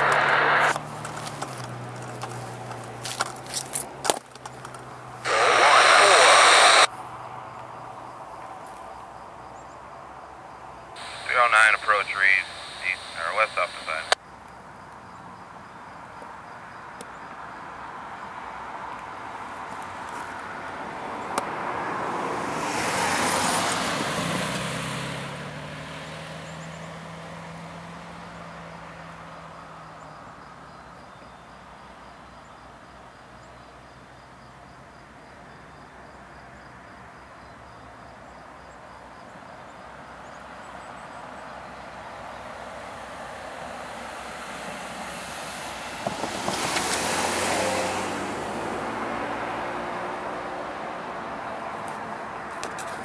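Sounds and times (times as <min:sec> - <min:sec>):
outdoor background: 0:00.0 - 0:53.0
vehicle passing by: 0:20.4 - 0:29.8, 0:43.6 - 0:52.5.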